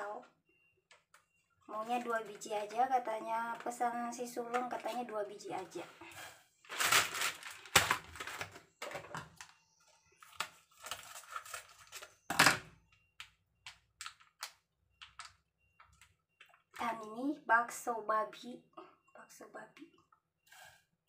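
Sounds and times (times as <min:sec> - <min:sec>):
plastic packet crinkling and tearing: 0:06.7 - 0:08.6, 0:10.2 - 0:12.3.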